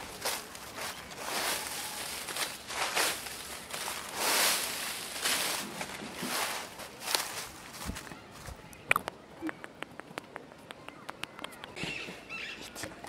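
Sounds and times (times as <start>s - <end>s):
footsteps in dry leaves: 0.0s - 8.7s.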